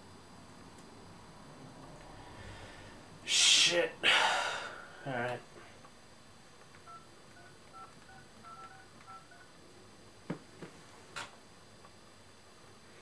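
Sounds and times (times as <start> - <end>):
touch-tone keypad beeping: 6.8 - 9.5.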